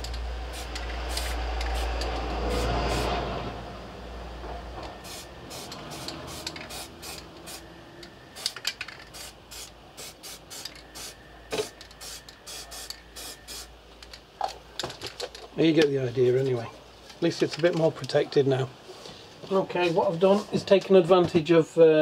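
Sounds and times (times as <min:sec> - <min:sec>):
aerosol spray can hissing: 0:00.0 - 0:03.2, 0:05.0 - 0:07.7, 0:08.4 - 0:13.7.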